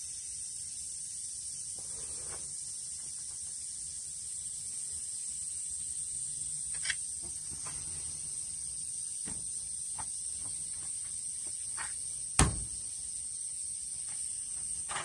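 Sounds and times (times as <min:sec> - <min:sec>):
high-pitched insect drone: 0:00.0 - 0:15.0
sharp loud knock: 0:12.4 - 0:12.7.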